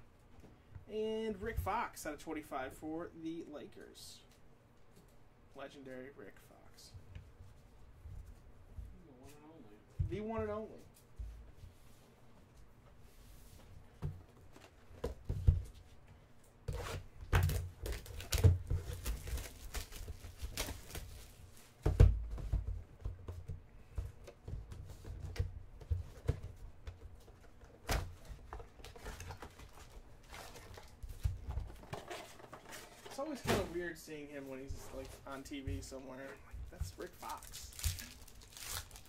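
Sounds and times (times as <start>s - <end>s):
foil packs rustling: 36.7s - 39.0s.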